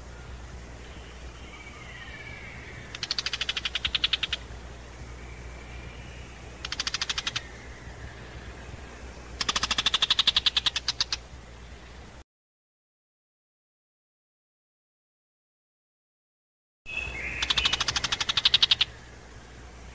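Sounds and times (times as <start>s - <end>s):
bird scolding rattle: 2.9s - 4.4s, 6.6s - 7.5s, 9.4s - 11.2s, 17.4s - 18.9s.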